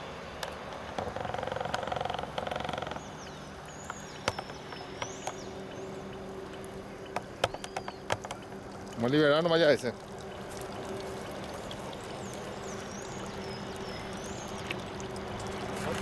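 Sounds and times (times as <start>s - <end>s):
water dripping and splashing: 3.5s - 16.0s.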